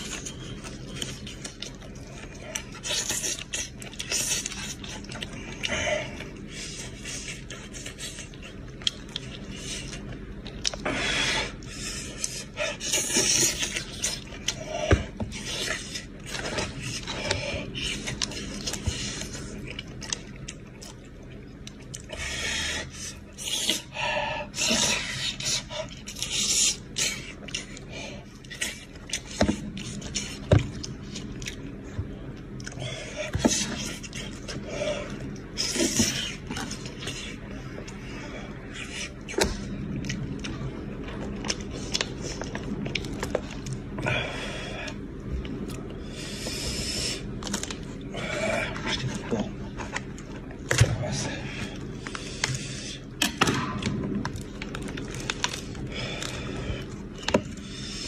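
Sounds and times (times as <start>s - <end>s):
wet chewing and slurping: 0.0s - 10.9s, 11.5s - 23.9s, 24.5s - 44.0s.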